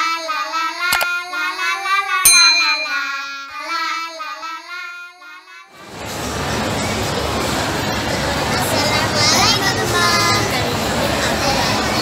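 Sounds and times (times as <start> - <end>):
child singing a jingle: 0.1 - 5.7
sharp click: 0.9 - 1.1
bright ringing ding: 2.3 - 3.6.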